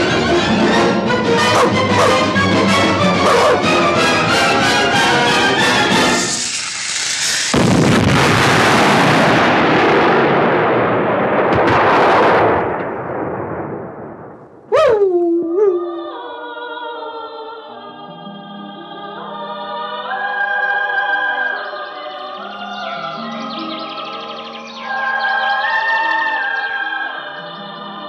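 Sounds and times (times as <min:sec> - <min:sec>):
orchestral film music: 0:00.0 - 0:06.4
dynamite explosion: 0:06.0 - 0:14.7.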